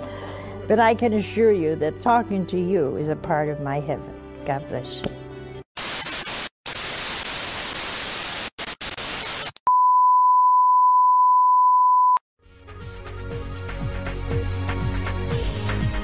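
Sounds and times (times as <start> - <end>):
television static hiss: 5.8 - 9.6.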